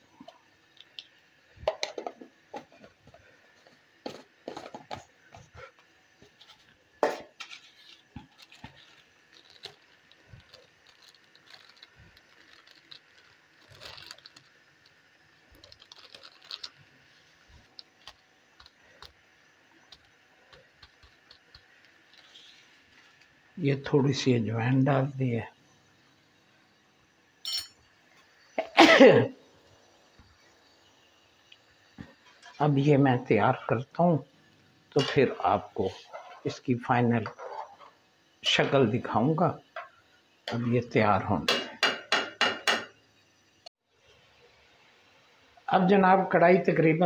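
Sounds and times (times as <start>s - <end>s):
spice packet rustling: 6.3s - 19.2s, 19.8s - 23.4s.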